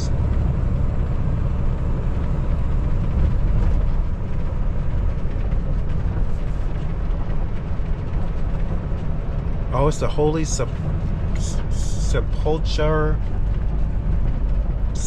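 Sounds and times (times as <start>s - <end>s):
truck diesel engine rumble: 0.0s - 15.0s.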